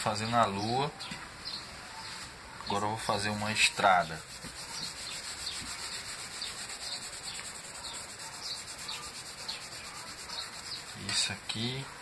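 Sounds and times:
cloth scrubbing wet paint: 0:03.4 - 0:11.9.

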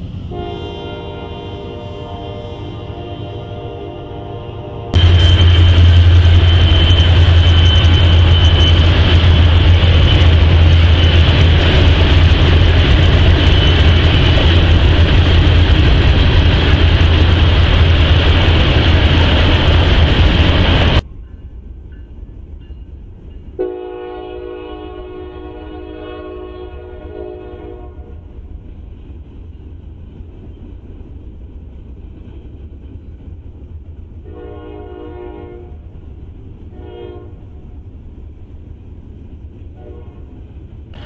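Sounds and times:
train wheels rumbling on rail: 0:00.0 - 0:03.7, 0:04.8 - 0:41.0
locomotive horn: 0:00.3 - 0:09.4, 0:23.6 - 0:28.2, 0:34.2 - 0:35.8, 0:36.7 - 0:37.7, 0:39.8 - 0:40.3
thin high whine: 0:05.0 - 0:11.6.

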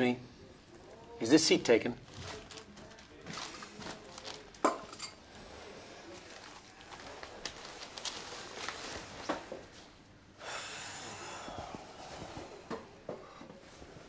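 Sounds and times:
clothes rustling: 0:06.1 - 0:10.0.

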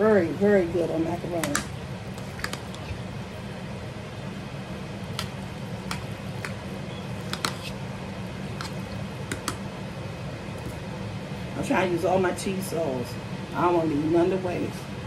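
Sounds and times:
pasta squishing in cheese sauce: 0:01.9 - 0:03.5, 0:05.0 - 0:09.6.

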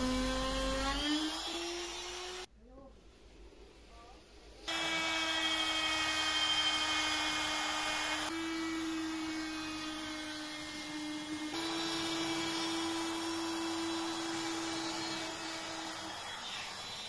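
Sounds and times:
router high-pitched whine: 0:04.7 - 0:17.0.

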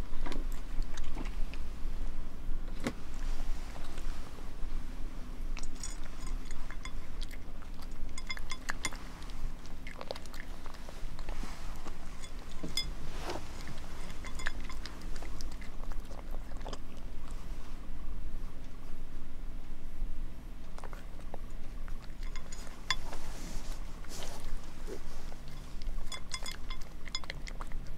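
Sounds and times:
cat crunching dry kibble: 0:05.5 - 0:17.4, 0:20.6 - 0:27.9.

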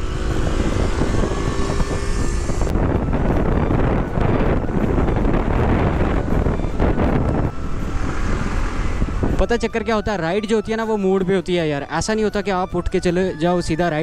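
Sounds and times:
scooter engine: 0:00.0 - 0:09.4
wind buffeting microphone: 0:00.0 - 0:11.2
road noise: 0:00.0 - 0:14.0.

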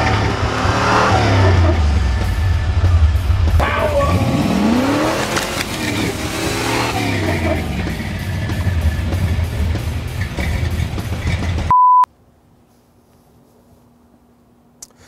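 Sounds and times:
off-road vehicle engine revving: 0:00.0 - 0:11.7.

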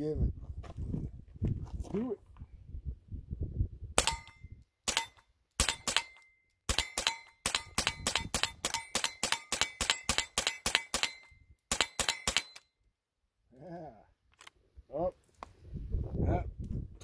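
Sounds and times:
rifle shots cracking: 0:04.0 - 0:04.3, 0:04.9 - 0:12.6
brief metallic ring: 0:04.0 - 0:07.6.

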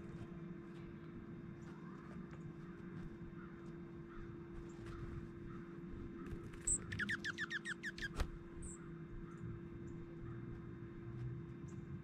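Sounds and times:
songbird trill: 0:03.4 - 0:10.5
high thin bird calls: 0:06.6 - 0:08.8.

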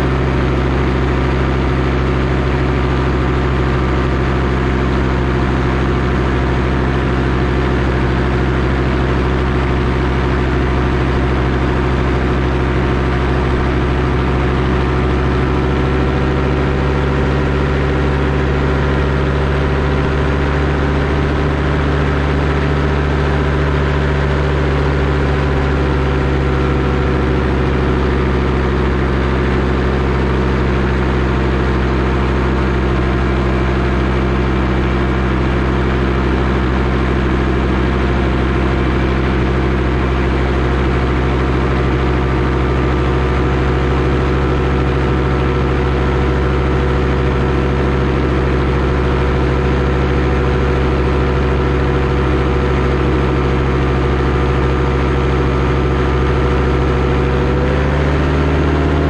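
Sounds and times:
paramotor engine and propeller: 0:00.0 - 0:59.0.

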